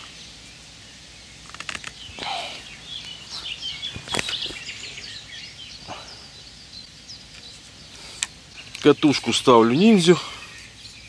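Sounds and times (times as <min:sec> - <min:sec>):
birds chirping: 0:00.0 - 0:11.0
sharp clicks: 0:01.4 - 0:02.0.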